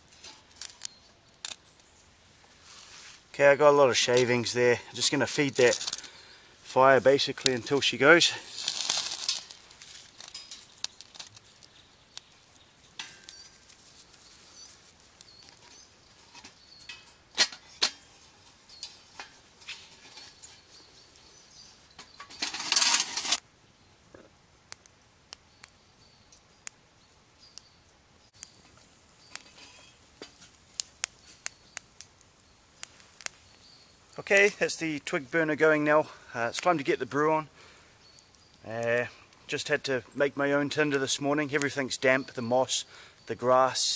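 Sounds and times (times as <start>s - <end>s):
sticks clinking in metal stove: 0.0s - 1.8s, 4.0s - 6.2s, 7.1s - 14.6s, 15.2s - 20.8s, 21.9s - 23.4s, 28.4s - 32.1s
sharp snaps and pops: 0.0s - 2.1s, 5.0s - 6.2s, 8.4s - 20.6s, 24.2s - 26.8s, 28.3s - 35.1s, 37.6s - 39.7s
small fire crackling: 0.0s - 43.9s.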